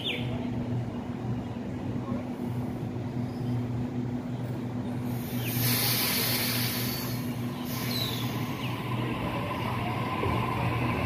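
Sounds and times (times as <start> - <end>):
electric train humming: 0.0 - 11.0
loud hiss of air: 5.0 - 8.8.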